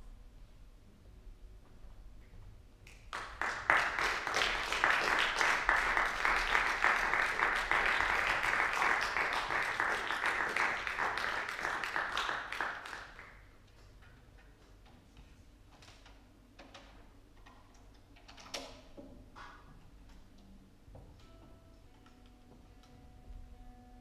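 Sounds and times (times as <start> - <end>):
audience applauding: 2.9 - 13.4.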